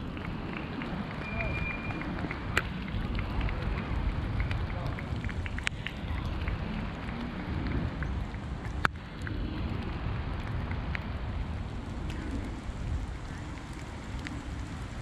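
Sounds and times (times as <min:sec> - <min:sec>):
wind buffeting microphone: 0:00.0 - 0:15.0
small ticks: 0:11.9 - 0:15.0.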